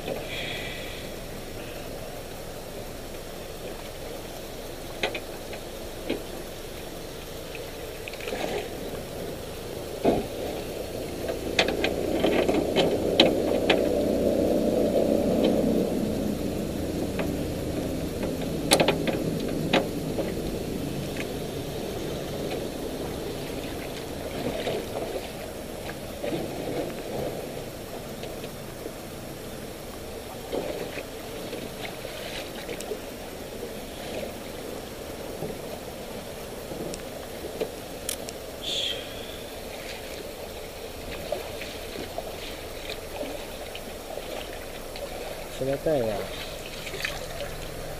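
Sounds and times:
low rustling rumble: 0.0s - 47.9s
sharp knocks and clicks: 18.2s - 20.4s.

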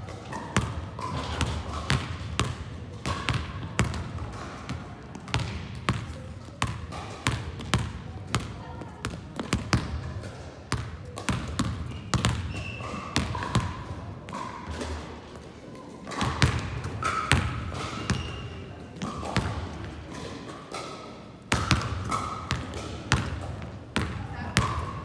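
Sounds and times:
basketballs bouncing on floor: 0.6s - 10.1s, 10.7s - 14.8s, 16.1s - 18.4s, 21.5s - 25.0s
sneakers squeaking: 11.6s - 14.7s, 16.1s - 19.6s, 24.0s - 25.0s.

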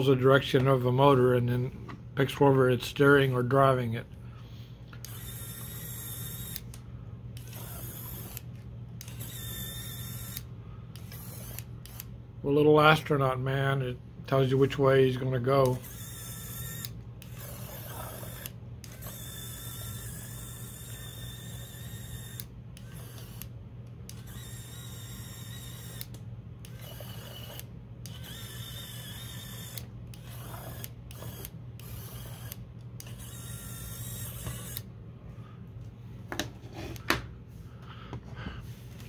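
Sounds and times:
toy car motor whining: 5.0s - 6.8s, 7.4s - 12.1s, 15.6s - 23.5s, 24.1s - 34.8s.

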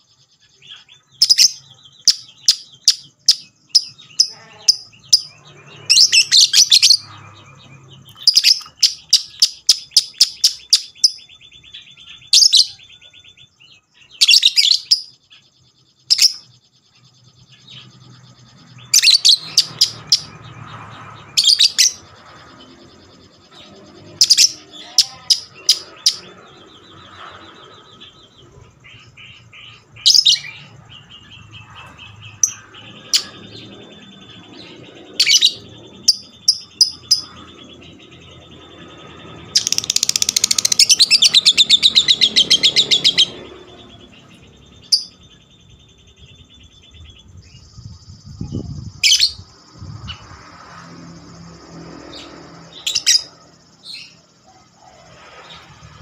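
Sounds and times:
lovebird chirping: 0.0s - 56.0s.

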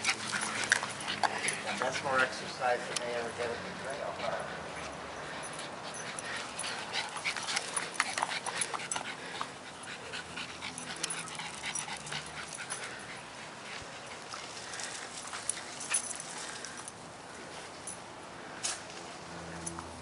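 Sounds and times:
dogs panting and scuffling: 0.0s - 20.0s.

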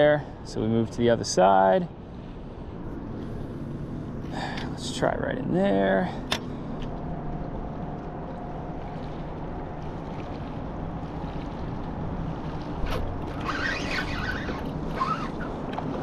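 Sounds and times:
water noise: 0.0s - 16.0s
wind: 0.0s - 16.0s
high wavering sounds: 12.8s - 15.6s.

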